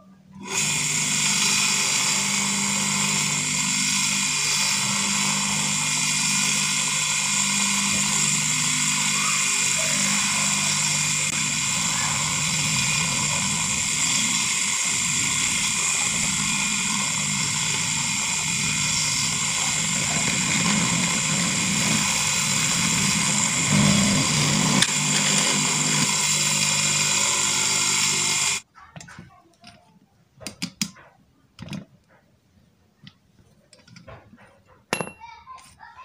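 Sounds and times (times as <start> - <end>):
electric motor whining: 0.4 - 28.6.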